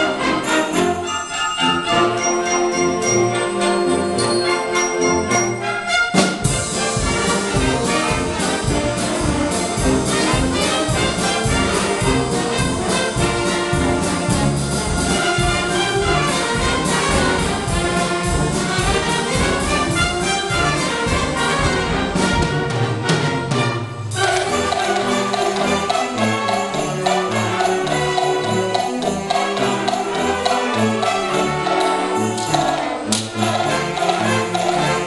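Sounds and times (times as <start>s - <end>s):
concert band playing: 0.0s - 35.0s
drum kit steady beat: 6.2s - 23.4s.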